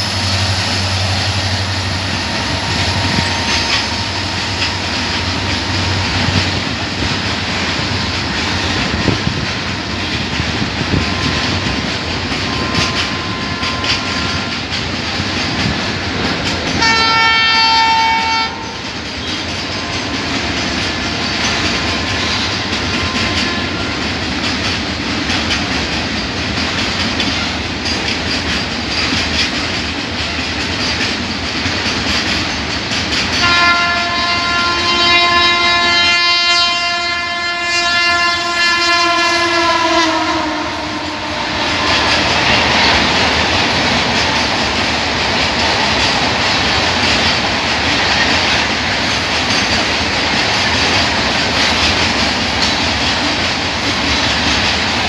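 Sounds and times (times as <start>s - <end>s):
train wheels clattering over rail joints: 0.0s - 34.4s, 40.9s - 55.0s
locomotive air horn blast: 16.8s - 18.8s, 33.4s - 42.2s.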